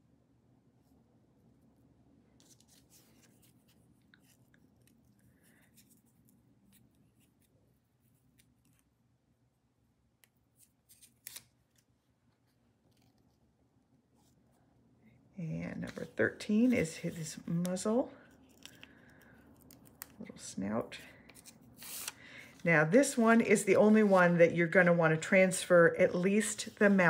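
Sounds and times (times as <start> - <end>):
paper rustling and crinkling: 2.4 - 8.9.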